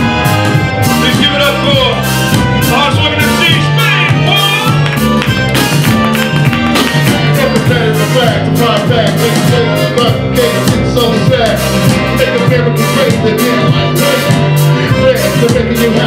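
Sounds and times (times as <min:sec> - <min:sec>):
accordion: 0:00.0 - 0:16.0
bass and drums: 0:00.0 - 0:16.0
person singing into microphone: 0:07.1 - 0:16.0.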